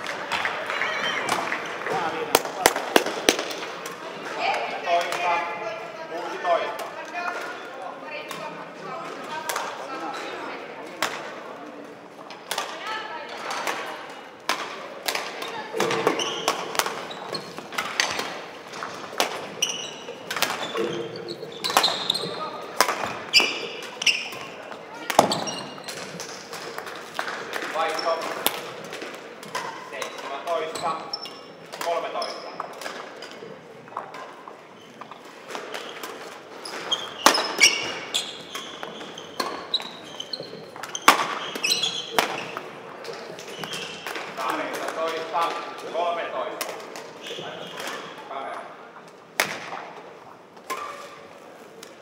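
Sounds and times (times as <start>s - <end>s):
rackets hitting shuttlecock: 1.2s - 4.0s, 12.4s - 12.8s, 13.4s - 20.9s, 21.6s - 30.8s, 35.5s - 45.9s, 49.3s - 50.0s
shoes squeaking on court floor: 15.3s - 27.0s, 27.6s - 46.2s, 47.0s - 48.3s, 50.6s - 52.0s.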